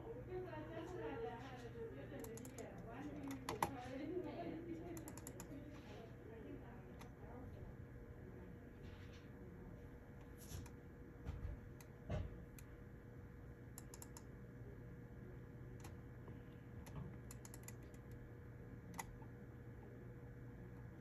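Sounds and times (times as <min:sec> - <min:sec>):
keyboard key clicks: 0:16.8 - 0:18.1.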